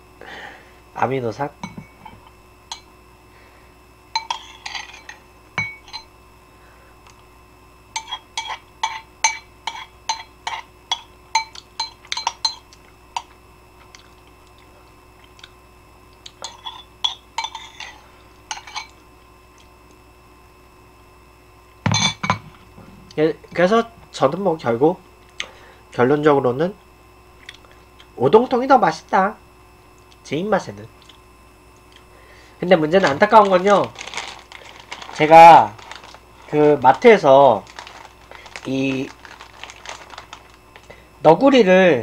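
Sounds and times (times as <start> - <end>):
metal spoon clinking on ceramic bowl: 1.6 - 2.9, 4.2 - 6.1, 8.0 - 13.3, 16.3 - 19.0.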